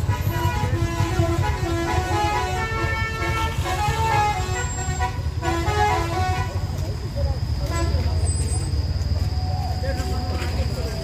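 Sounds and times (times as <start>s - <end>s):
multi-tone musical horn: 0.0s - 6.8s, 7.6s - 8.2s
heavy vehicle engines rumbling: 0.0s - 11.0s.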